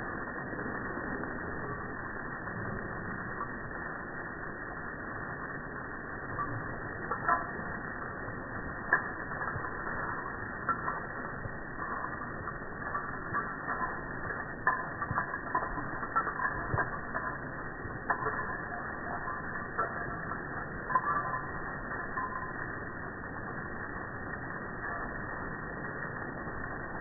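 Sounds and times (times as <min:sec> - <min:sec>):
garden hose spraying water: 0:00.0 - 0:27.0.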